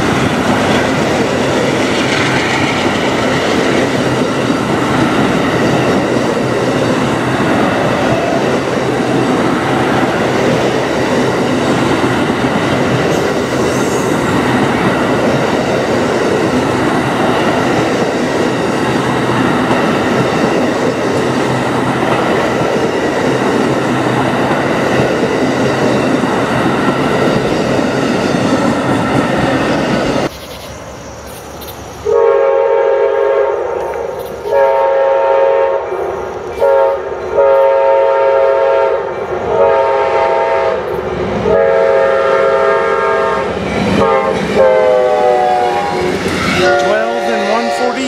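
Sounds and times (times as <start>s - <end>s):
train wheels rumbling on rail: 0.0s - 48.0s
locomotive air horn blasts: 32.1s - 33.7s, 34.5s - 35.9s, 36.6s - 40.8s, 41.4s - 48.0s.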